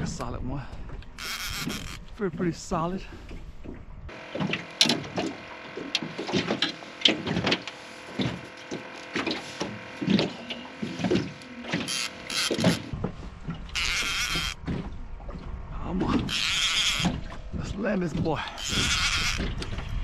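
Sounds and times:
fishing reel creaks and clicks: 0:01.2 - 0:02.2, 0:11.8 - 0:12.9, 0:13.7 - 0:14.6, 0:16.3 - 0:17.2, 0:18.5 - 0:19.7.

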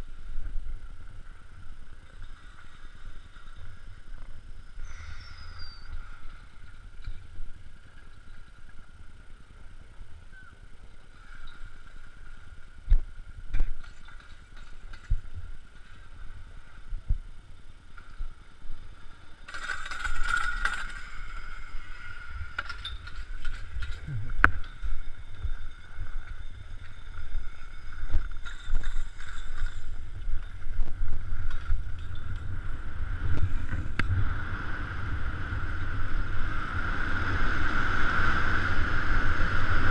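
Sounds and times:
low wind rumble: 0:00.0 - 0:39.9
steady high hum: 0:20.5 - 0:39.9.

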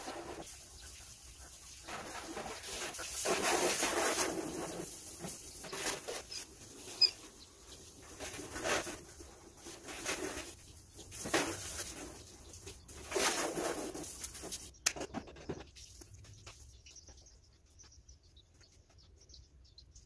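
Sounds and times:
hose spraying water on car: 0:00.0 - 0:06.8.

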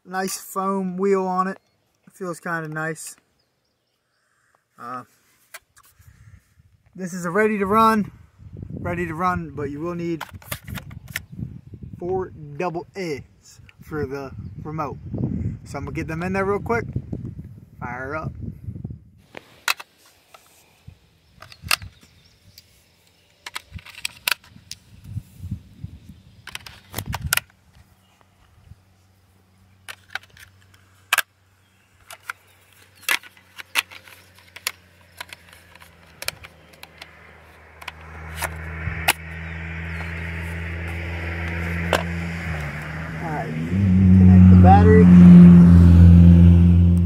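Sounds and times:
plastic clicks of batteries snapping: 0:32.0 - 0:37.2, 0:37.8 - 0:39.2.

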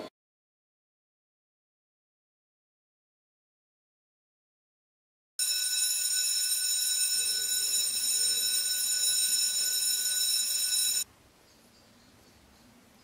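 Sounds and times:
high-pitched electronic alarm tone: 0:05.4 - 0:11.0
faint outdoor background: 0:05.4 - 0:13.0.

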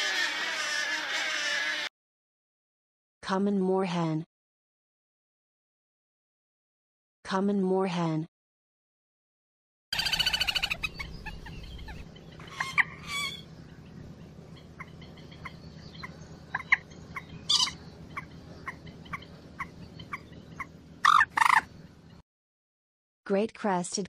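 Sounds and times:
moorhen calling: 0:10.0 - 0:22.2.

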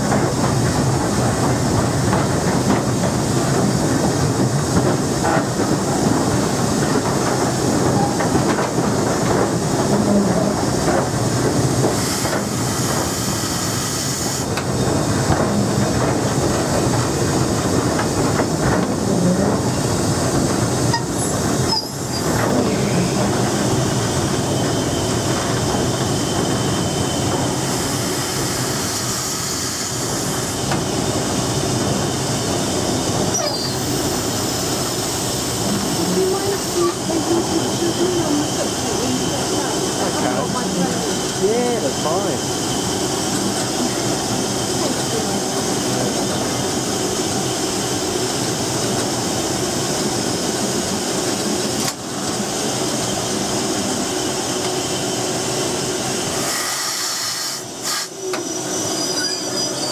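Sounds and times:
locomotive running on rails: 0:00.0 - 0:59.9
steam hiss: 0:11.1 - 0:15.8, 0:19.6 - 0:59.9.

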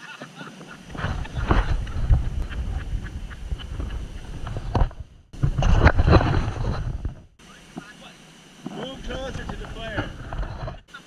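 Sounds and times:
wind buffeting microphone: 0:00.8 - 0:07.4.

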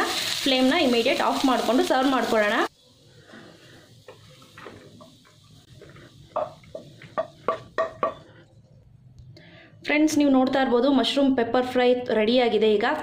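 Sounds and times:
spatula knocking against pan: 0:06.4 - 0:08.2.

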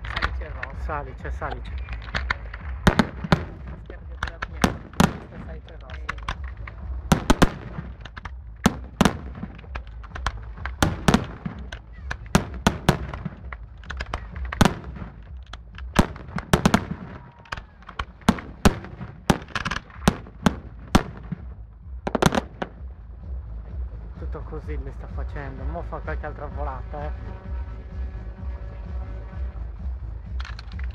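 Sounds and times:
firework shells bursting: 0:01.4 - 0:21.5, 0:22.1 - 0:22.8.

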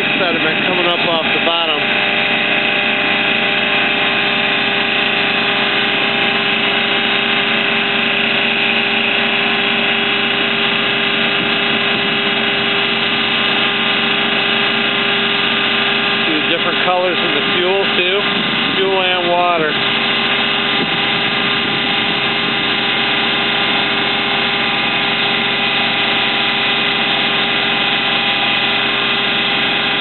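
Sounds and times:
pump mechanical drone: 0:00.0 - 0:30.0
pump whine: 0:00.0 - 0:30.0.

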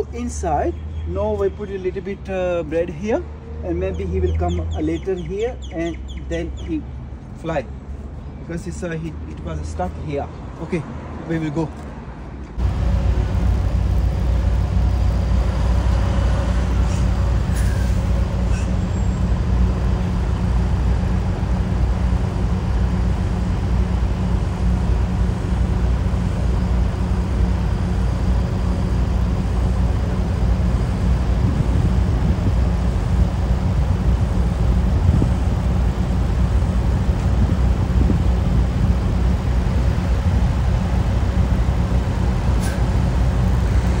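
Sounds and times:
truck diesel engine idling: 0:12.6 - 0:44.0.

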